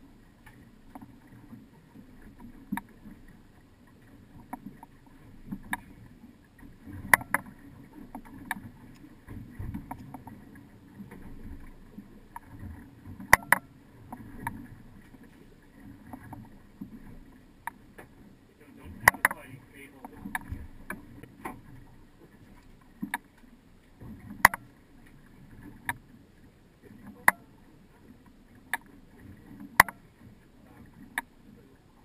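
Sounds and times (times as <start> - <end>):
hull rumbling on water: 0.0 - 32.0
boat knocks and clicks: 4.0 - 6.0, 6.6 - 15.2, 18.8 - 26.1, 27.0 - 27.6, 28.2 - 31.4.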